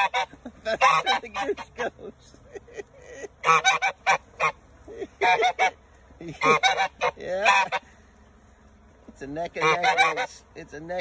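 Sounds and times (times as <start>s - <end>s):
goose honking: 0.0s - 1.9s, 3.4s - 8.0s, 9.3s - 10.6s.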